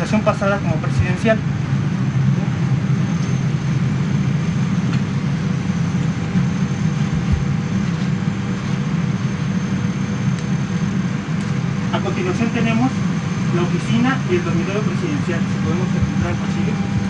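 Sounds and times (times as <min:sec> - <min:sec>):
airliner cabin ventilation hum: 0:00.0 - 0:17.0.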